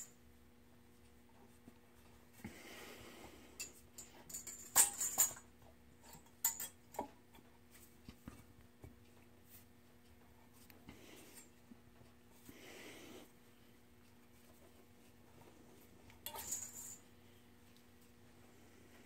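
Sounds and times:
light metallic clinks and clicks: 0:03.6 - 0:07.0, 0:16.2 - 0:17.1.

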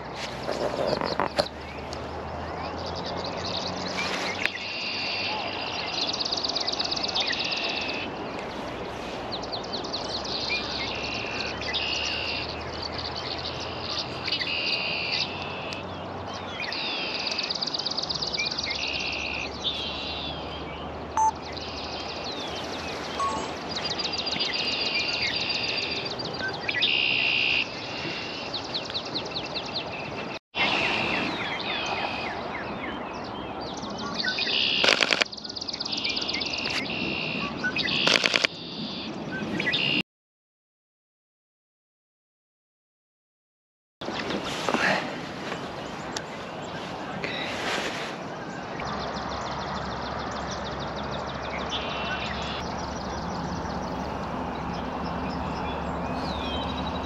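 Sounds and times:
songbirds singing trilled phrases: 0:00.6 - 0:40.0, 0:48.6 - 0:57.0
sharp clicks: 0:34.8 - 0:35.4, 0:38.0 - 0:38.6.

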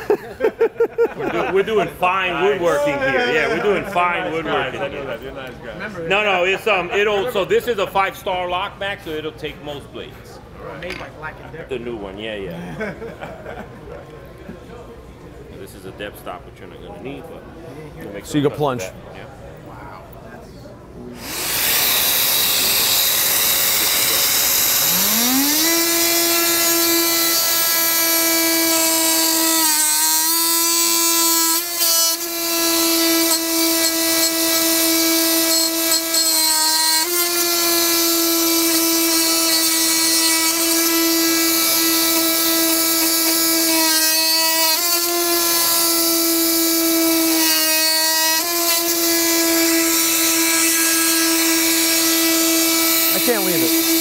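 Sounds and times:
oscillating multi-tool cutting wood: 0:21.2 - 0:54.0.

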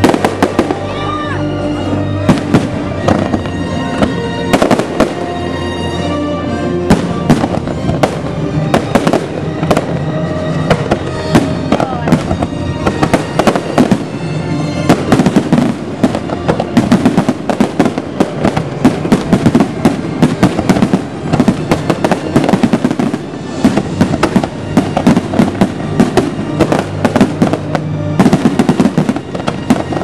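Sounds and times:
fireworks bangs and crackling: 0:00.0 - 0:05.7, 0:06.4 - 0:30.0
music playing: 0:00.0 - 0:30.0.

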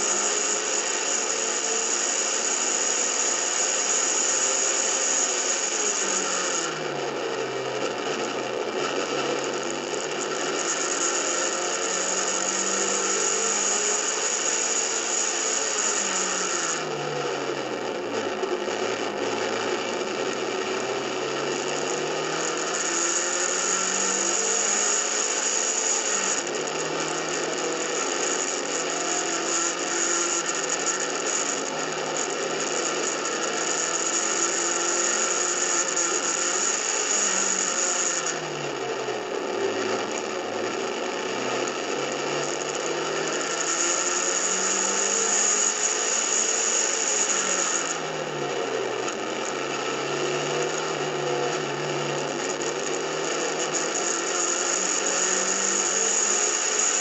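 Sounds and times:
race car engine: 0:00.0 - 0:57.0.

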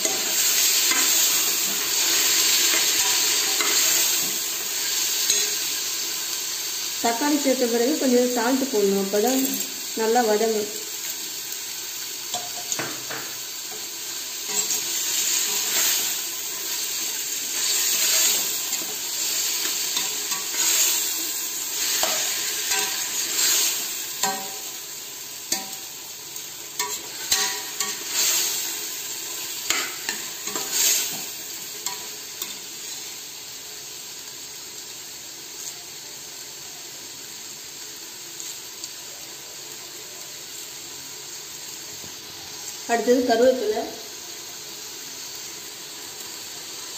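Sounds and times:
vegetables sizzling in hot oil: 0:00.0 - 0:46.9.

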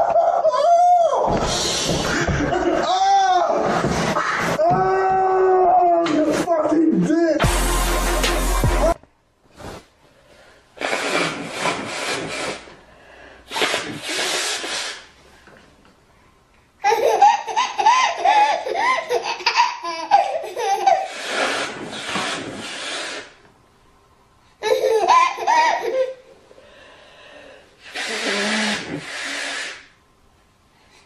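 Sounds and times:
harsh nose blows: 0:10.8 - 0:12.8, 0:13.4 - 0:15.2, 0:21.0 - 0:23.4, 0:27.2 - 0:30.0
baby laughing: 0:16.8 - 0:21.6, 0:24.6 - 0:26.3.

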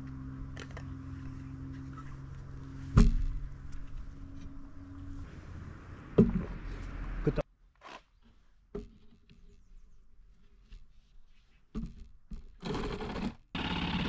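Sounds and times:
steady low hum: 0:00.0 - 0:07.4.

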